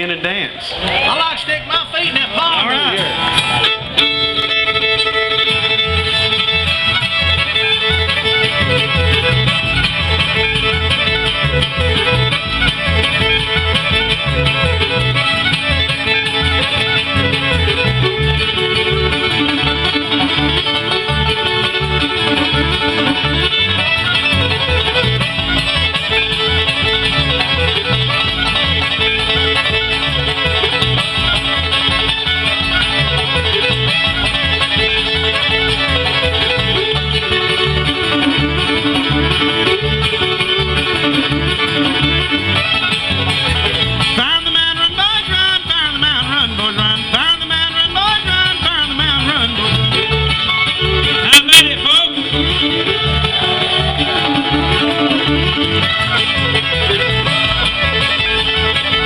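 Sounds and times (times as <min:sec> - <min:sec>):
even beat: 0:00.9 - 0:46.3, 0:47.9 - 0:59.0
fiddle sliding melody: 0:00.9 - 0:59.0
strummed acoustic guitar: 0:02.9 - 0:59.0.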